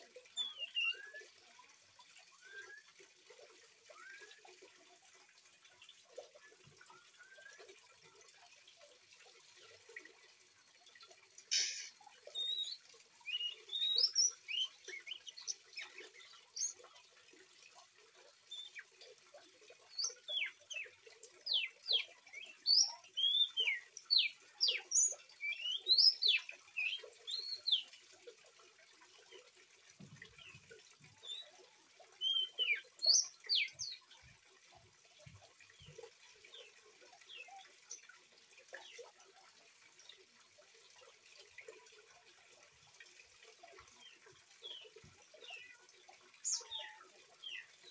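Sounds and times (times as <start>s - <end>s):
trickle of running water: 0.0s - 47.9s
bird whistles and chirps: 32.2s - 34.0s.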